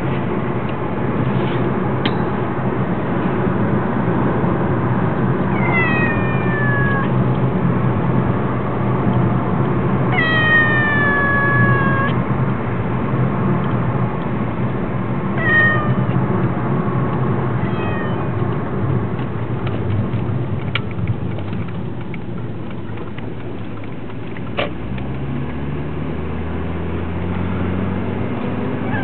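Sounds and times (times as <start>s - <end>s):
cat meowing: 5.5s - 7.2s, 10.1s - 12.2s, 15.3s - 16.2s, 17.6s - 18.4s, 28.8s - 29.0s.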